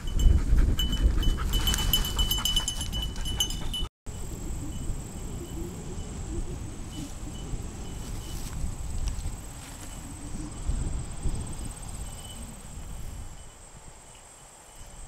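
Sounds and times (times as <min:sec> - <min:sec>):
dog collar bell jingling: 0:00.0 - 0:03.9.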